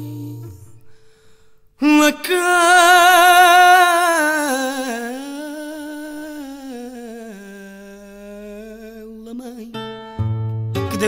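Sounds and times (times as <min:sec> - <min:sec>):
man singing long note with vibrato: 0:01.8 - 0:09.8.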